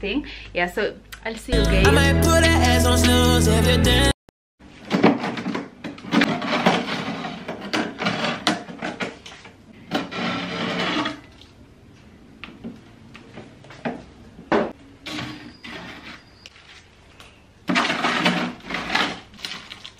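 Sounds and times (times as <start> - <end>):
plastic packaging rustling: 17.8 - 19.9.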